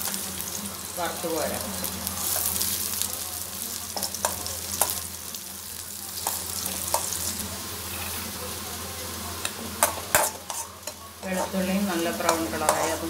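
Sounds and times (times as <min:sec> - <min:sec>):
garlic sizzling in hot oil: 0:00.0 - 0:13.0.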